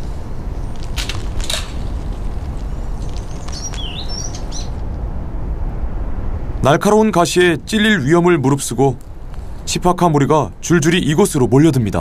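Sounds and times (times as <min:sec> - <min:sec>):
bird chirping: 0:00.0 - 0:04.8
short crackles: 0:00.0 - 0:05.0
wind rumble: 0:00.0 - 0:12.0.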